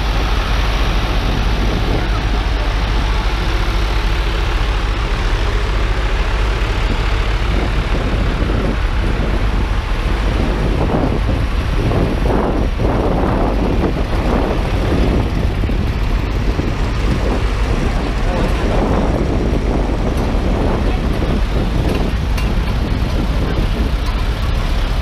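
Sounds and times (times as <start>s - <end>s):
tractor engines rumbling: 0.0s - 25.0s.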